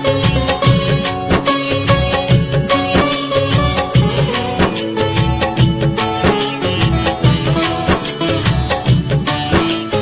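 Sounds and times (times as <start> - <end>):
melody instrument: 0.0 - 10.0
steady drum beat: 0.0 - 10.0.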